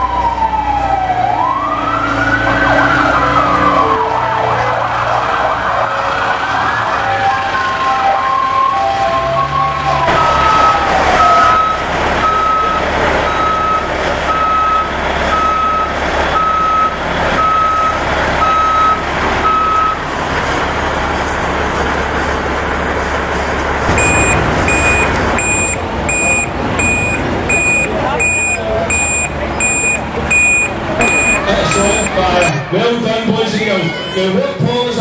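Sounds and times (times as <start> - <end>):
heavy truck engine running: 0.0 - 33.8
higher-pitched reversing alarm: 7.5 - 20.0, 23.9 - 32.6
reversing alarm beeping: 7.9 - 20.0, 23.9 - 32.6.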